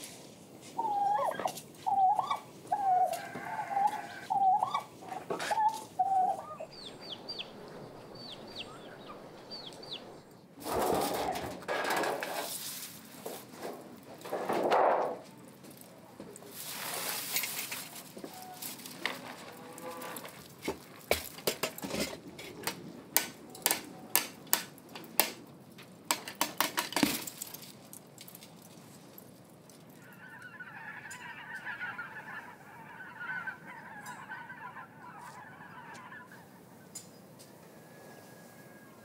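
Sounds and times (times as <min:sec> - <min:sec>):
fowl honking chatter: 0:00.8 - 0:07.2, 0:30.0 - 0:37.0.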